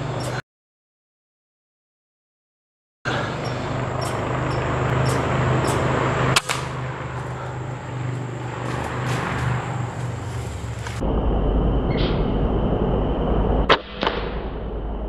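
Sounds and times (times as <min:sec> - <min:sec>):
low outdoor hum: 0:00.0 - 0:00.4, 0:03.1 - 0:15.0
sharp crack: 0:05.1 - 0:07.2, 0:13.7 - 0:14.8.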